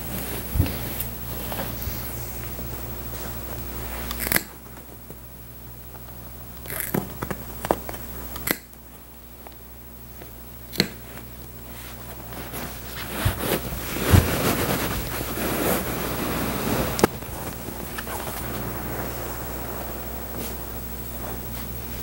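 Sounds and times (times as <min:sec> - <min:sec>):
sharp clicks and snaps: 0:08.3 - 0:08.8
fabric rustling: 0:11.6 - 0:22.0.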